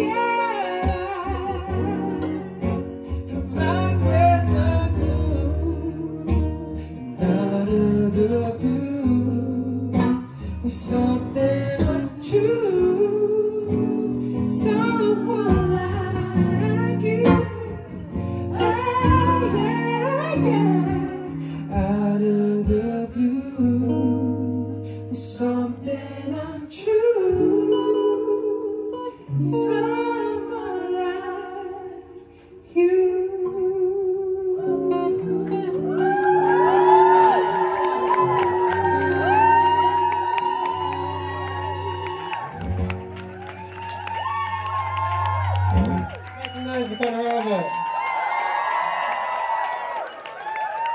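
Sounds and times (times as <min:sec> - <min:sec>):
strummed acoustic guitar: 0:00.0 - 0:28.4
man singing: 0:00.0 - 0:35.8.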